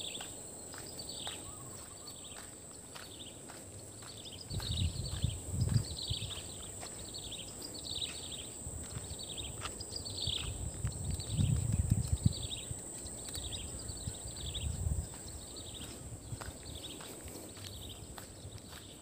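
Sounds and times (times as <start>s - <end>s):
wind rumble on microphone: 4.4s - 7.2s, 7.9s - 18.8s.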